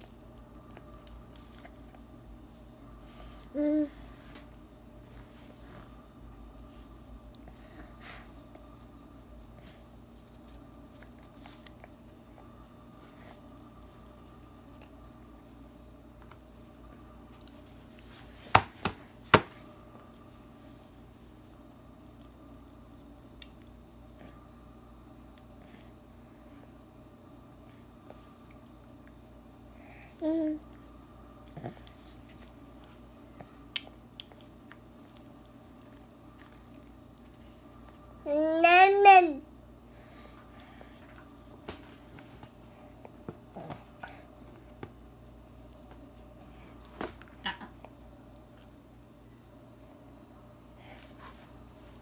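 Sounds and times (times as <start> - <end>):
baby chewing wetly: 33.3 - 38.0.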